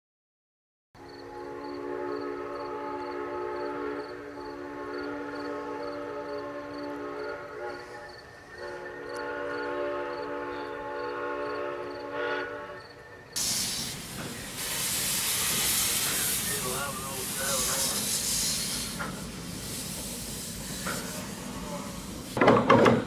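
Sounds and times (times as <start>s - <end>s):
chime steam whistle blowing: 1.2s - 22.0s
loud hiss of escaping steam: 12.5s - 22.4s.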